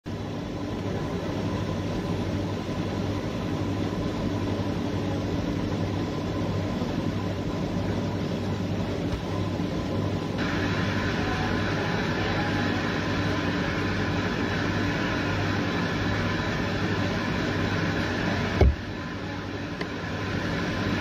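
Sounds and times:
faint steady whines: 0.1 - 21.0
machine drone: 7.1 - 21.0.

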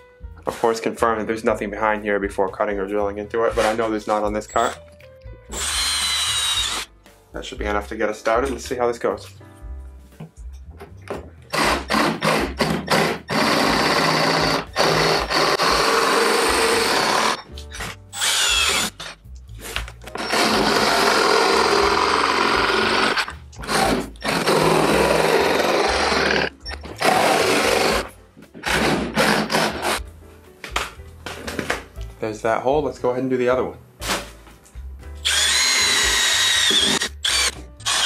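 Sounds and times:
jigsaw cutting plastic: 5.5 - 6.9, 11.6 - 17.4, 18.2 - 19.2, 20.1 - 30.0, 35.2 - 38.0.

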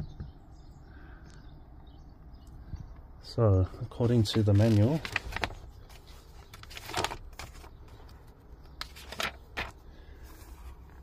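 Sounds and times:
paper rustling: 3.8 - 11.0.

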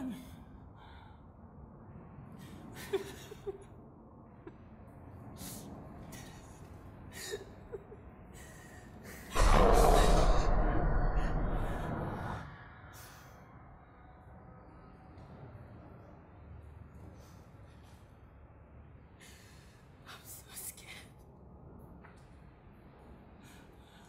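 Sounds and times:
loud breathy rushing noise: 8.5 - 14.9.

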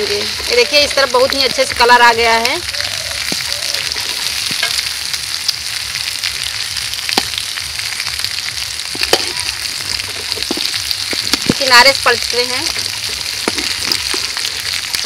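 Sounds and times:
food sizzling in oil: 0.0 - 15.0.

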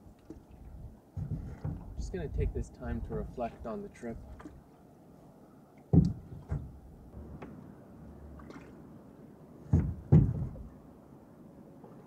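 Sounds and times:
small knock: 5.9 - 6.7, 9.7 - 10.7
paddle splashing into water: 8.2 - 8.9, 9.6 - 10.7.

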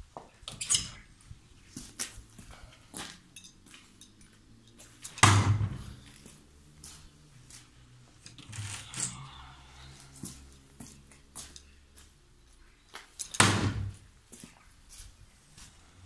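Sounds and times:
knife striking wooden door: 13.4 - 13.9.

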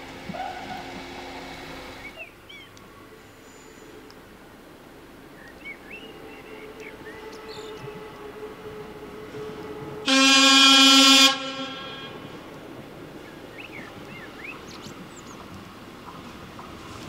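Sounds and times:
railcar horn blast: 6.1 - 12.6.

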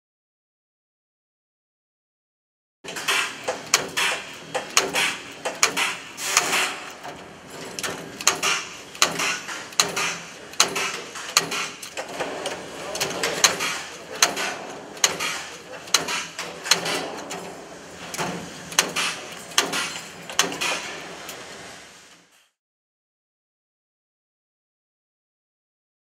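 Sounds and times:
clinching tool metallic clacks: 2.9 - 21.4.

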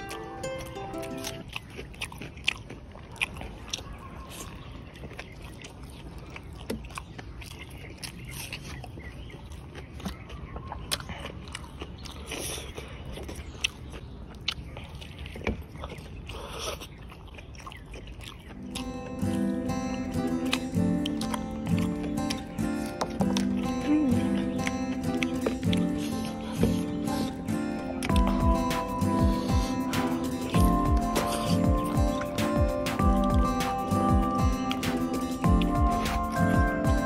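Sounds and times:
acoustic guitar music: 0.0 - 1.4, 18.6 - 37.0
wet mouth clicks and smacks: 0.0 - 4.0, 4.9 - 34.0
chewing and biting chicken: 0.0 - 37.0.

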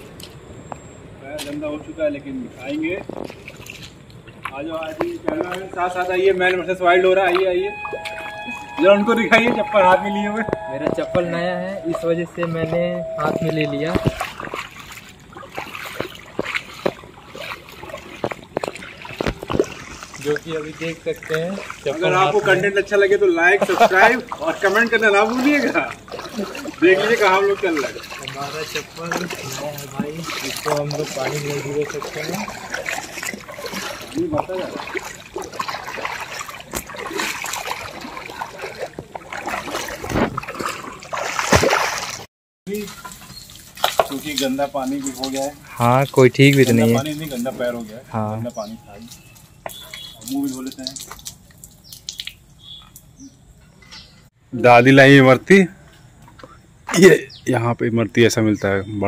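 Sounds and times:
footsteps splashing in water: 1.4 - 1.8, 2.5 - 53.1
loud water splash: 6.8 - 22.6, 23.4 - 47.6.

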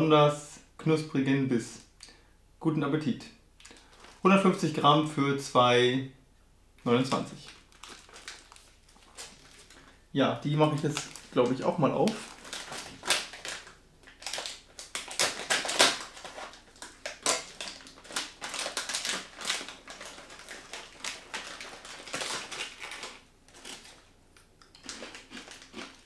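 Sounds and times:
plastic snack bag crinkling: 3.6 - 4.8, 6.9 - 26.0.

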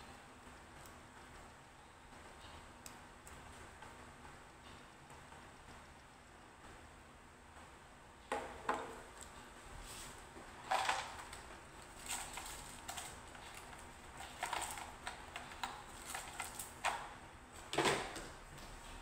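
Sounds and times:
tools clicking and rattling: 10.6 - 17.1.

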